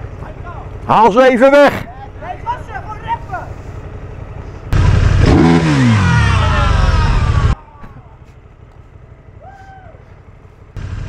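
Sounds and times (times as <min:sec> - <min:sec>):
engine rumble: 0:00.0 - 0:11.0
motorcycle engine revving: 0:01.7 - 0:07.6, 0:10.1 - 0:11.0.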